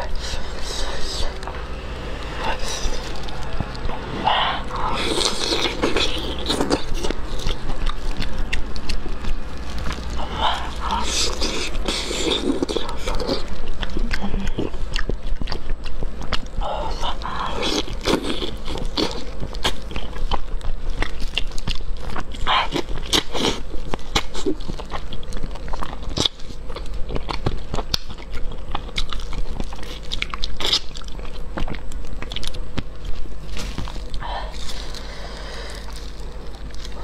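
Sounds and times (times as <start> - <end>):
wet chewing and lip smacking: 2.2 - 37.0.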